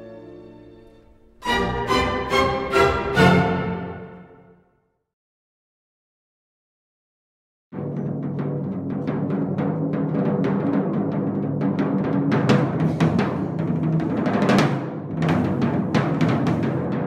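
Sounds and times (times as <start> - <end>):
timpani drum rolls: 1.2 - 4.3, 7.8 - 17.0.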